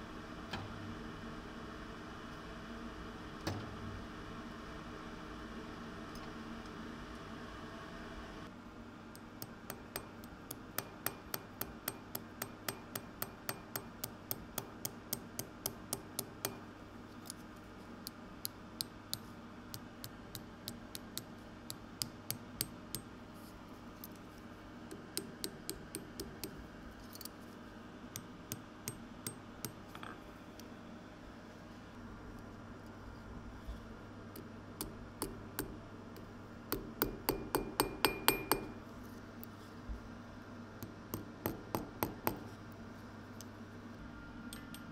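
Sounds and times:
hammer tapping metal on anvil: 9.1 - 16.7, 18.4 - 23.1, 24.9 - 26.6, 28.2 - 30.2, 34.4 - 35.8, 36.7 - 38.8, 40.8 - 42.5.

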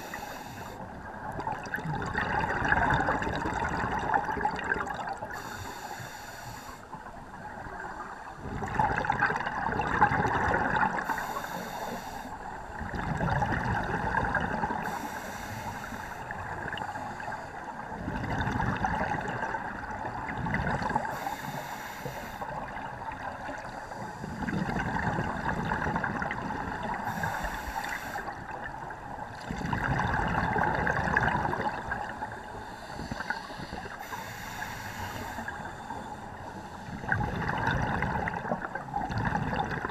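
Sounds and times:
regulator inhale hiss: 0.0 - 0.9, 5.3 - 7.0, 11.0 - 12.8, 14.8 - 17.8, 21.0 - 22.6, 23.6 - 24.5, 26.9 - 28.5, 32.4 - 37.1
exhaled air bubbling: 0.0 - 5.8, 7.1 - 12.0, 12.6 - 39.9.

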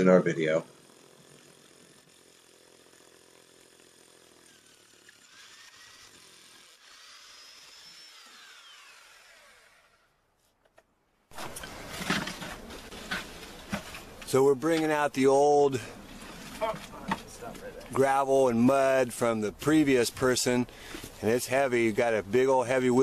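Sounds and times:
faint hammer drill boring: 0.0 - 10.2
rough scraping and knocking: 10.7 - 15.2, 16.0 - 17.7.

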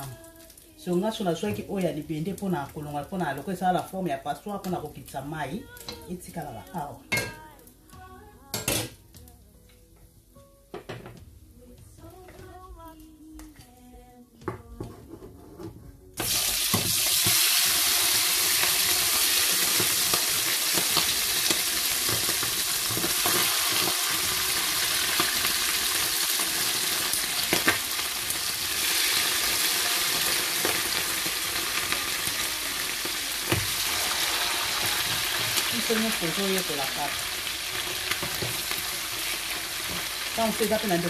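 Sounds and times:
chicken sizzling in hot oil: 0.0 - 7.6, 16.2 - 41.0.

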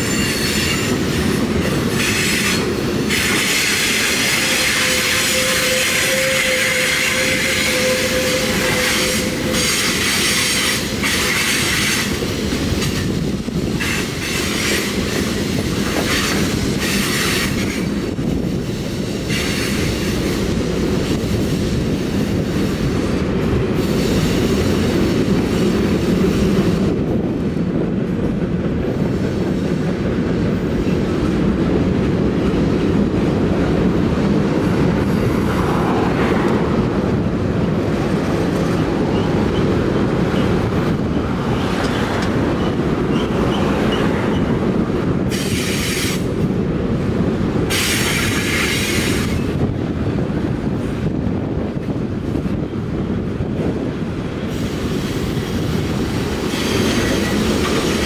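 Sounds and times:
train wheels rumbling on rail: 0.0 - 58.0
high-pitched wheel squeal: 4.4 - 10.7.

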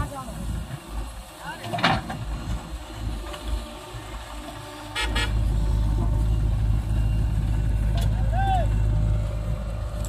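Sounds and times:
close diesel rumble: 0.0 - 10.0
diesel engines running: 0.0 - 10.0
horn toot: 4.9 - 5.4.

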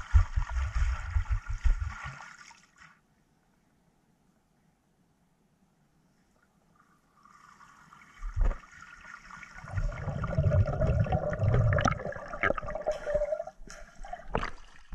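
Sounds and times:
underwater churning and bubbling: 8.2 - 14.9
underwater thump: 11.6 - 14.9.

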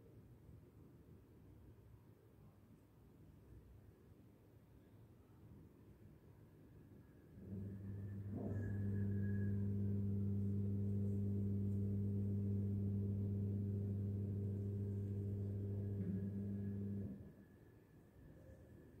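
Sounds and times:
low hum with overtones: 7.4 - 17.3.

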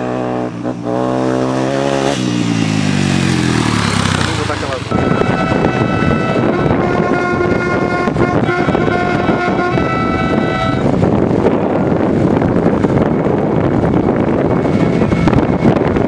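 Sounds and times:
vehicle rumbling on dirt road: 0.0 - 16.0
vehicle horn steady note: 4.9 - 10.9
wind on microphone: 4.9 - 16.0.

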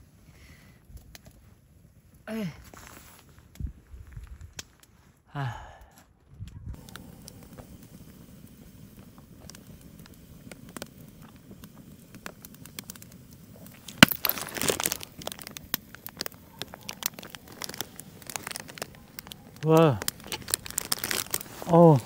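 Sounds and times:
campfire crackling and popping: 0.0 - 22.0
plastic wrapper crinkling: 9.3 - 22.0.

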